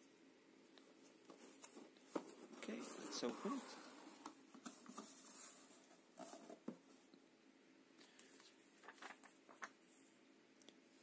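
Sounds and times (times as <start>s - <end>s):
paper and cardboard rustling: 1.0s - 7.0s, 8.3s - 9.8s.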